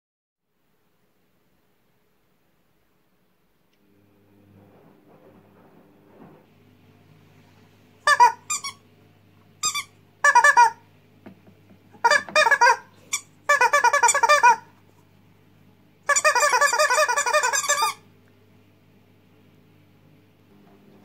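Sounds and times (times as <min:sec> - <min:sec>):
rubber squeak toys squawking: 0:08.1 - 0:08.8, 0:09.6 - 0:10.8, 0:12.0 - 0:14.7, 0:16.1 - 0:18.0.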